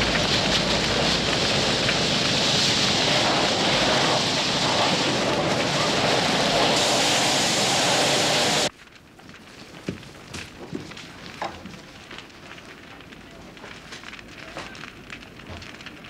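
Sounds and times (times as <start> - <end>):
hoses spraying water: 0.0 - 8.7
fire burning: 0.0 - 16.0.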